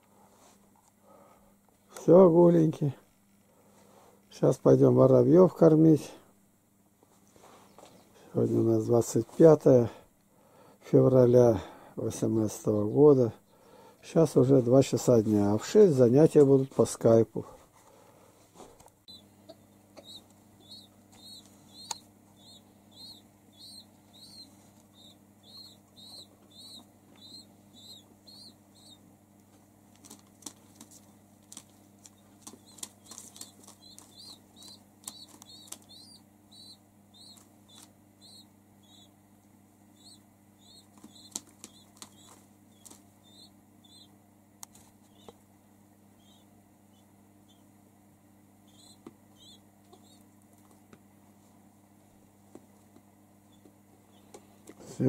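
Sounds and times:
steady low hum: 0:00.0 - 0:55.0
squab peeping: 0:19.0 - 0:29.1, 0:30.0 - 0:39.2, 0:39.9 - 0:44.2, 0:45.0 - 0:45.4, 0:46.1 - 0:47.7, 0:48.6 - 0:50.3.

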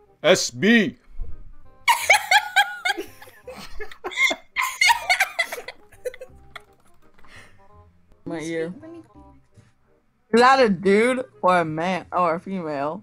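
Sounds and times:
girls laughing: 0:01.9 - 0:06.7.

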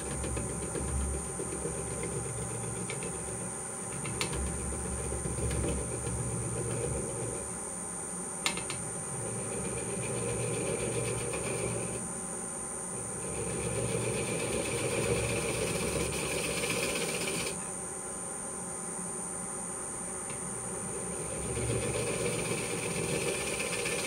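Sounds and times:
wood lathe cutting: 0:09.2 - 0:12.0, 0:13.0 - 0:17.6, 0:20.8 - 0:24.0.

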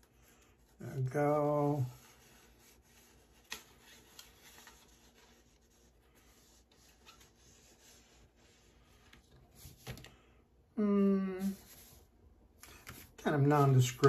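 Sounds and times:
wax iron rubbing on card: 0:01.0 - 0:09.1.

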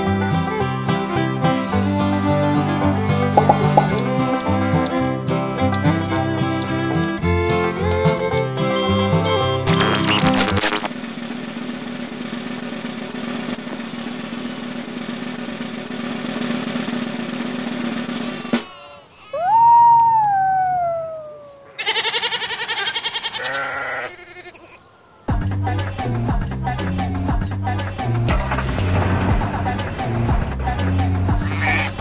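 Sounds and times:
snare drum roll: 0:12.7 - 0:18.7, 0:28.3 - 0:32.0
quavering cartoon sheep bleat: 0:18.3 - 0:19.5, 0:21.6 - 0:24.8, 0:31.5 - 0:32.0
cartoon dog howl sliding down: 0:19.2 - 0:22.7.

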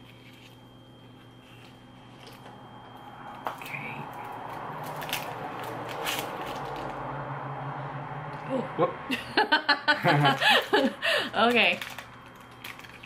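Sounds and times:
lollipop wrapper crinkling: 0:11.7 - 0:13.0.

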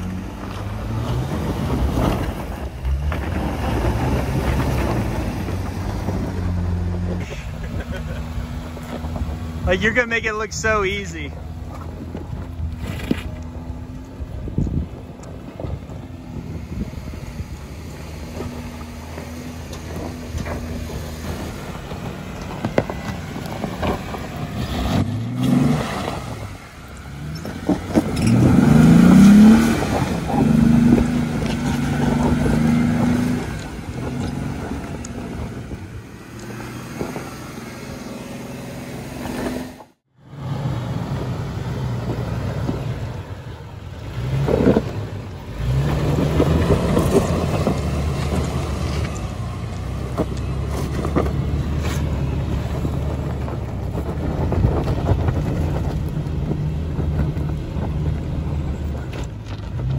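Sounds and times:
off-road vehicle engine revving: 0:00.0 - 0:59.9
tire spinning in loose dirt: 0:00.0 - 0:59.9
tires knocking on rock: 0:18.2 - 0:25.5, 0:45.6 - 0:59.9.

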